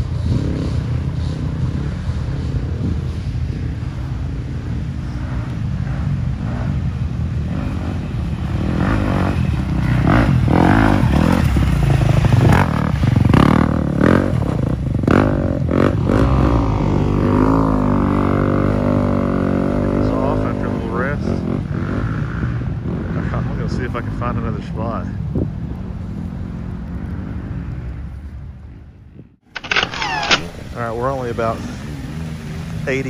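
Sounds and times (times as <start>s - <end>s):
dirt bike engine revving: 0.0s - 24.6s.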